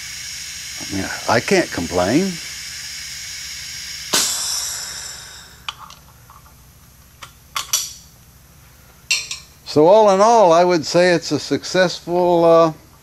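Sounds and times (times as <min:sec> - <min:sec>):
compressed air hissing: 0:00.0 - 0:05.9
rush of air: 0:04.2 - 0:05.6.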